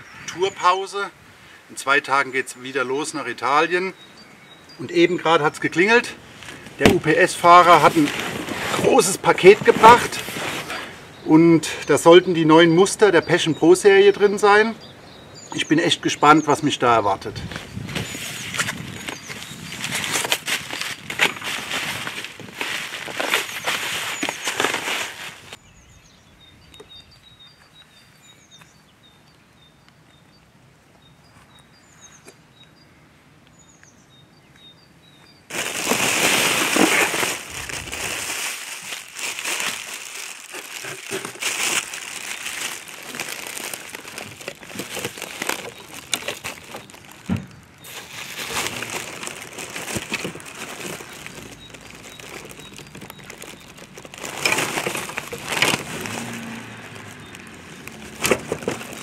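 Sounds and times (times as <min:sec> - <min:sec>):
bubble wrap crinkling: 0:06.4 - 0:10.9, 0:17.8 - 0:25.6, 0:35.5 - 0:59.0.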